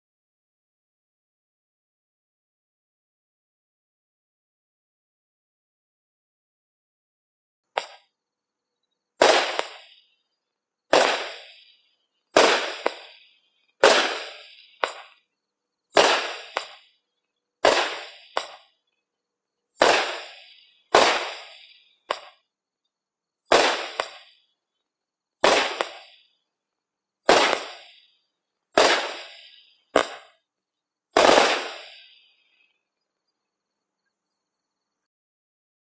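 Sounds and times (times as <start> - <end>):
small firework pops: 7.7 - 8.1, 9.2 - 10.1, 10.9 - 15.2, 15.9 - 17.0, 17.6 - 18.8, 19.8 - 22.5, 23.5 - 24.4, 25.4 - 26.3, 27.2 - 28.1, 28.8 - 30.4, 31.2 - 32.3
firework bangs: 9.2 - 10.1, 10.9 - 15.2, 15.9 - 17.0, 17.6 - 18.8, 19.8 - 22.4, 23.5 - 24.4, 25.4 - 26.3, 27.2 - 28.1, 28.7 - 30.4, 31.1 - 32.3.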